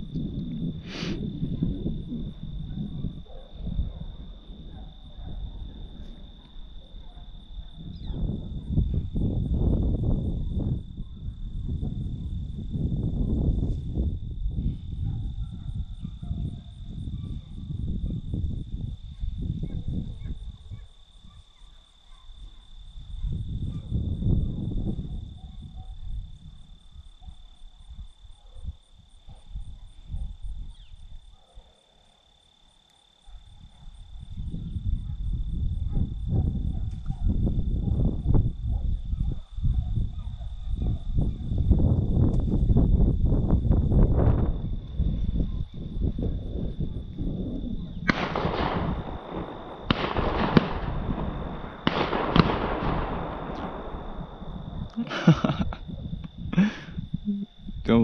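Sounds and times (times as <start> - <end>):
wind rumble on microphone: 0.0 - 31.4, 33.2 - 58.0
distant shotgun shots echoing: 48.1 - 54.7.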